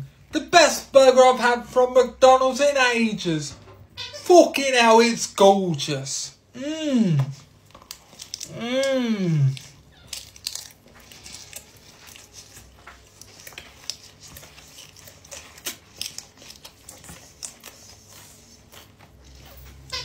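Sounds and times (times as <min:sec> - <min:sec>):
person chewing: 0:06.4 - 0:20.0.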